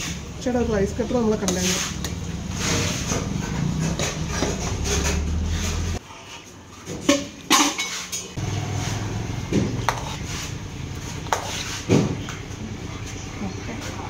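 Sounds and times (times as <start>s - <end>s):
utensils clinking against pots: 1.4s - 6.0s, 6.8s - 8.4s.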